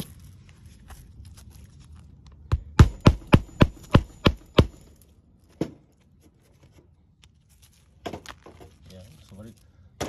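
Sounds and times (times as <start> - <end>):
hammer striking shingle: 2.5 - 4.9.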